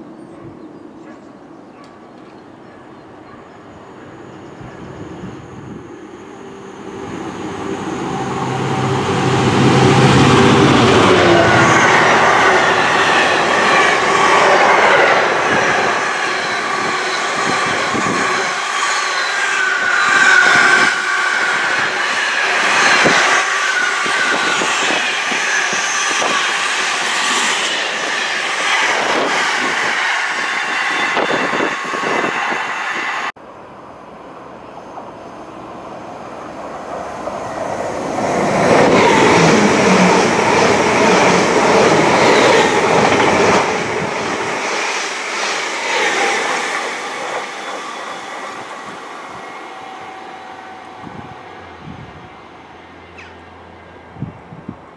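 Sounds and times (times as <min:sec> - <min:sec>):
diesel locomotive passing: 0:00.0 - 0:54.9.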